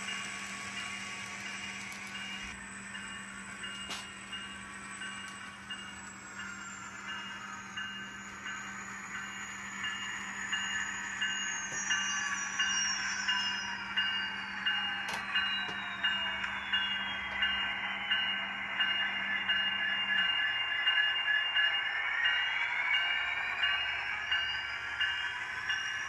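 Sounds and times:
model locomotive whine falling in pitch: 0:00.0 - 0:26.0.

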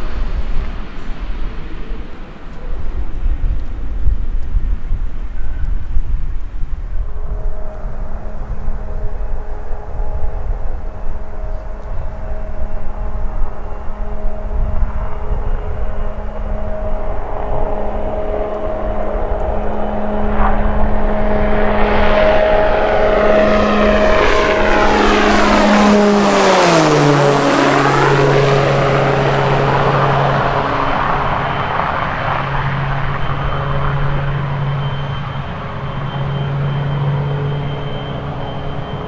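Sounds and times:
propeller airplane engine drone: 0:00.0 - 0:39.0.

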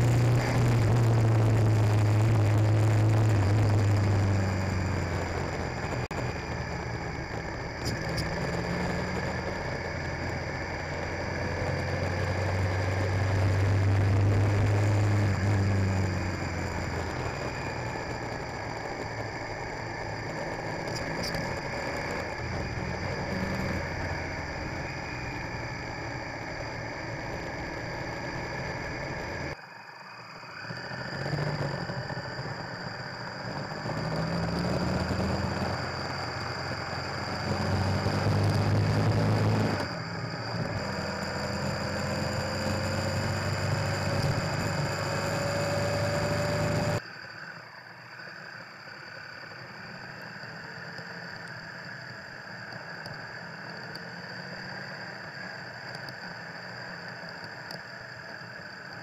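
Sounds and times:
motorcycle engine accelerating: 0:00.0 - 0:47.0
road noise: 0:00.0 - 0:59.0
thin rising whine: 0:00.0 - 0:59.0.

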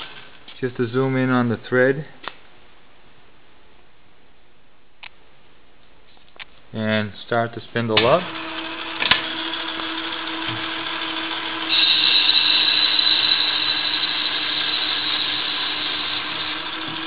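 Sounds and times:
lathe humming: 0:00.0 - 0:00.3, 0:08.0 - 0:17.0.

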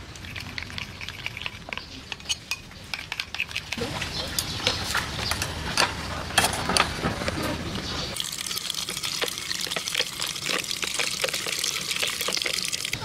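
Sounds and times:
tap water running: 0:08.2 - 0:13.0
utensil clicking on metal pot: 0:08.5 - 0:13.0.

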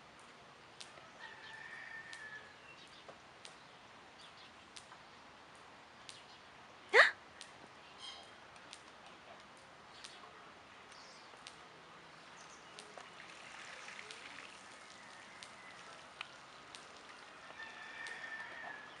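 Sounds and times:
low steady hiss: 0:00.0 - 0:19.0
small clicks: 0:04.8 - 0:05.0, 0:08.5 - 0:10.2, 0:10.9 - 0:11.6, 0:12.7 - 0:13.1, 0:15.4 - 0:17.0, 0:18.0 - 0:18.2.

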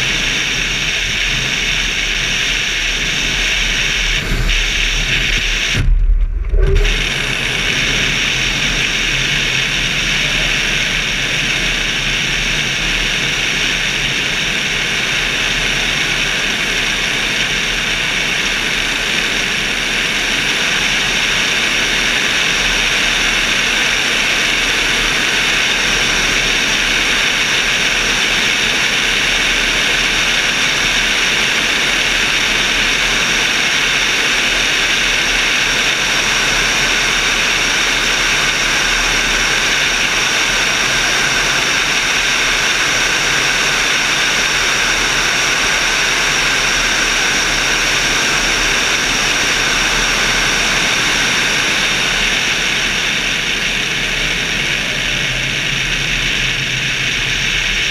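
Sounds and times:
engine and propeller drone: 0:00.0 - 0:57.9
rushing air: 0:00.8 - 0:10.2.

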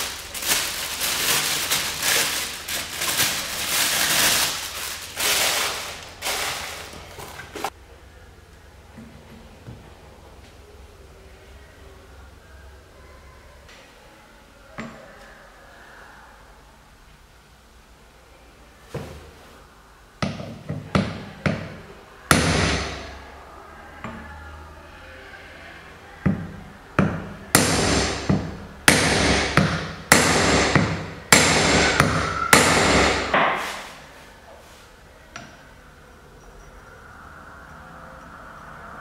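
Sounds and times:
hammer striking metal: 0:27.0 - 0:33.8.

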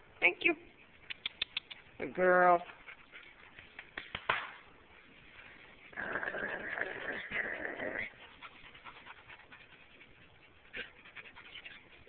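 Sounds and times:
dog panting: 0:01.1 - 0:04.0, 0:06.4 - 0:12.0.

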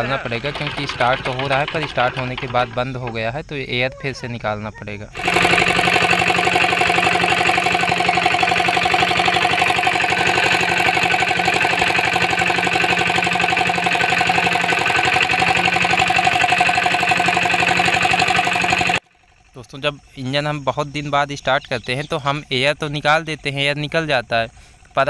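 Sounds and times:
diesel engine running: 0:00.0 - 0:03.2, 0:05.2 - 0:19.5.

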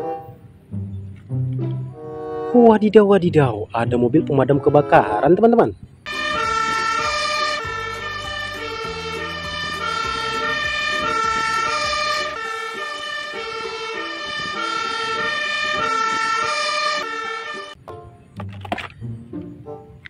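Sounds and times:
truck engine rumbling: 0:00.0 - 0:20.0
light background music: 0:00.1 - 0:02.9, 0:06.1 - 0:20.0
fire engine two-tone siren: 0:06.1 - 0:17.8.

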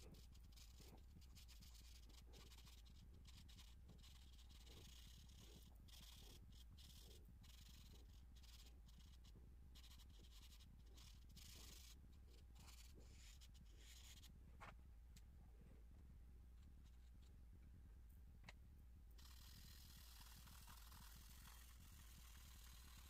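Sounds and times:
charcoal scratching on paper: 0:00.0 - 0:14.4, 0:19.2 - 0:23.0.

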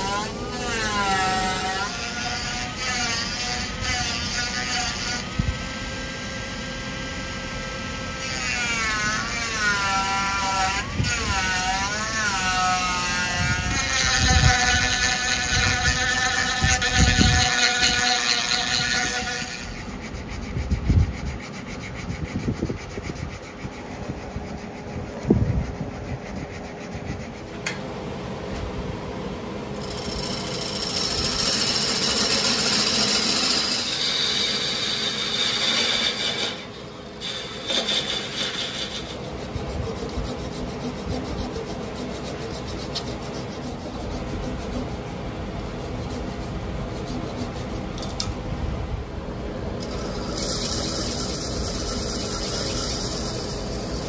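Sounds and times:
turning tool cutting wood: 0:08.3 - 0:27.5, 0:29.8 - 0:45.1
abrasive rubbing on spinning wood: 0:16.4 - 0:27.5, 0:50.0 - 0:54.0
lathe hum: 0:29.5 - 0:39.2.

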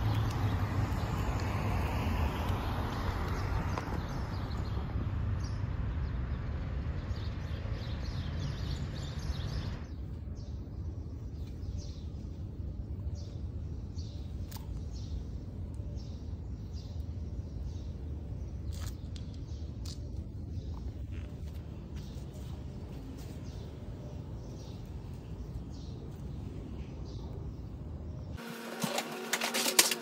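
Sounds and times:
small birds chirping: 0:02.2 - 0:28.4
steady low rumble: 0:09.7 - 0:28.4.

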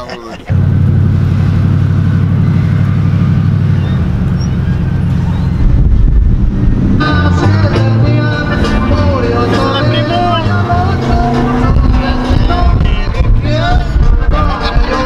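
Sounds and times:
truck engine running in cab: 0:00.0 - 0:15.0
music: 0:06.6 - 0:15.0.

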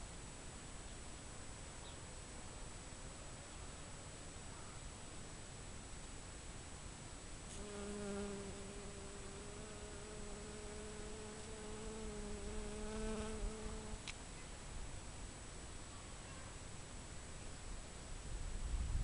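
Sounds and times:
bee buzzing: 0:07.5 - 0:14.1.

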